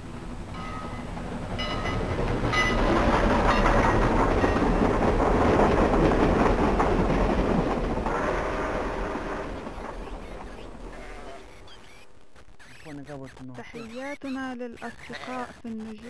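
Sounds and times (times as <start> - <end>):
train wheels rumbling and clattering: 0.0 - 12.0.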